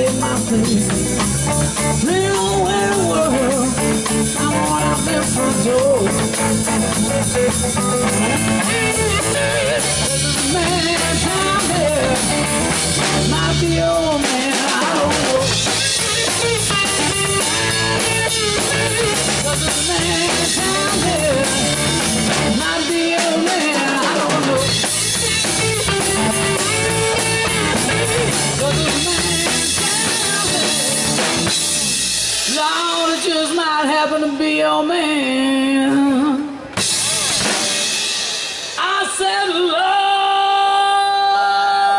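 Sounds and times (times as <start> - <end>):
electric bass: 0.0 - 32.9
drum kit: 0.0 - 33.6, 36.6 - 39.4
electric guitar: 0.0 - 41.9.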